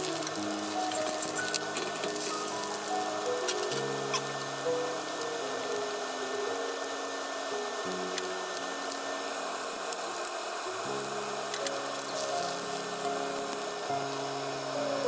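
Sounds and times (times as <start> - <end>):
background music: 0.0 - 9.4
egg sizzling in hot oil: 0.0 - 15.0.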